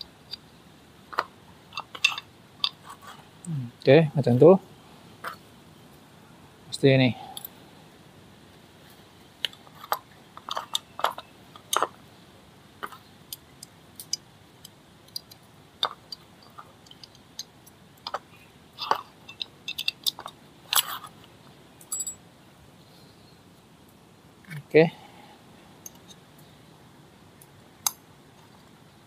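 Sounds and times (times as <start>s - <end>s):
small metal parts clinking: 1.1s - 3.2s, 9.5s - 12.0s, 15.0s - 21.2s, 21.8s - 22.2s.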